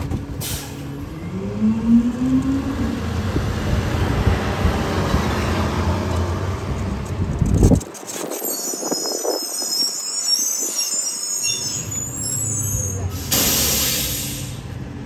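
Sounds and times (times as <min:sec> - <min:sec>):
garbage truck squealing: 0:08.0 - 0:14.6
air brake hiss: 0:12.9 - 0:14.6.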